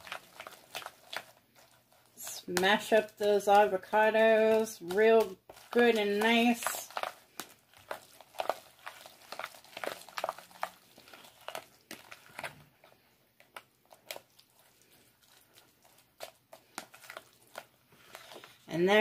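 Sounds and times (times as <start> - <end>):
avocado mashing in plastic bowl: 0.0 - 19.0.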